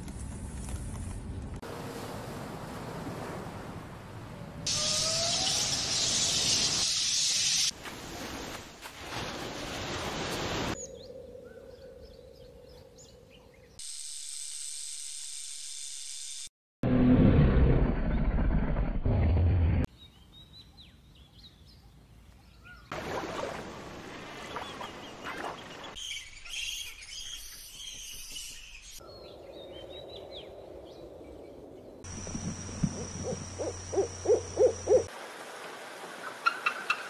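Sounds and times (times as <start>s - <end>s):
eagle high calls: 4.7s - 6.7s, 32.2s - 35.1s
low hoots: 32.2s - 35.1s.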